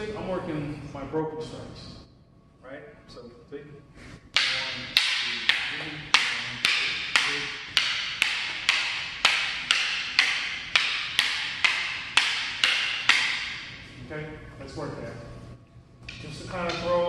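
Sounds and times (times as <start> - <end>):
fighting sticks clacking: 4.3 - 13.9.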